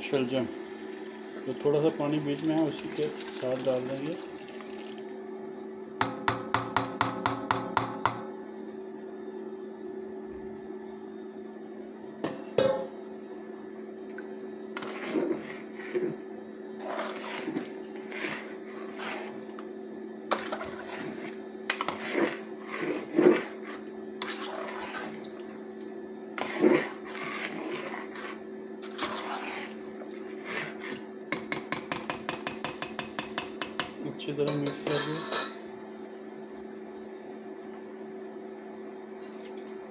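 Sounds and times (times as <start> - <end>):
metal spoon scraping in a pot: 14.8 - 16.2, 16.8 - 19.5, 20.3 - 25.2, 26.4 - 31.0, 34.5 - 35.6.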